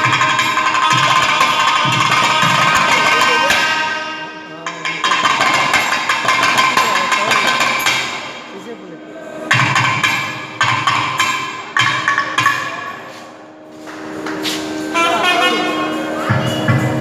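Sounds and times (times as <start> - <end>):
drums played in crisp strokes: 0.0 - 8.5, 9.5 - 17.0
reedy wind instrument held notes: 14.6 - 17.0.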